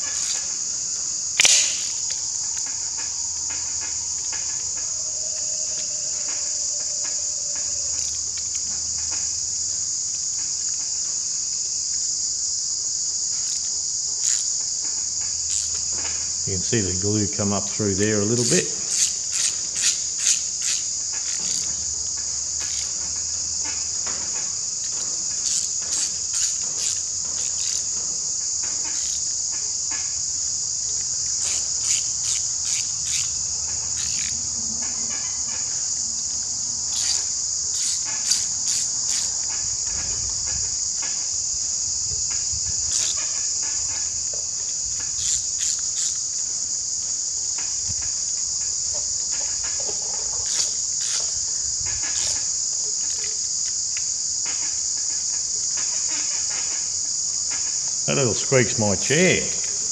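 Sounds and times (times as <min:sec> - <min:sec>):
high-pitched insect chorus: 0:00.0 - 0:59.9
socket ratchet clicking: 0:01.4 - 0:02.2.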